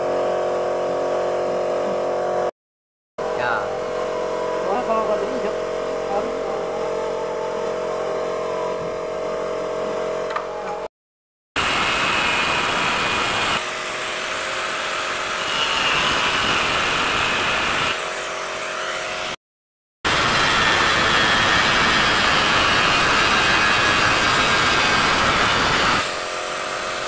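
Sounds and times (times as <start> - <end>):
machine hum: 3.2 - 10.9
angle grinder cutting aluminium: 11.6 - 19.4, 20.1 - 27.0.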